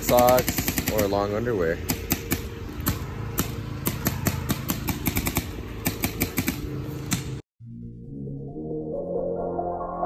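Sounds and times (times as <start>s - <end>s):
paintball markers firing: 0.0s - 7.4s.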